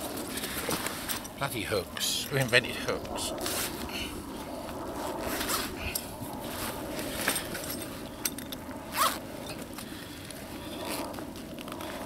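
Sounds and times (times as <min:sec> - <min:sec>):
zip being pulled: 0:08.9 - 0:09.2.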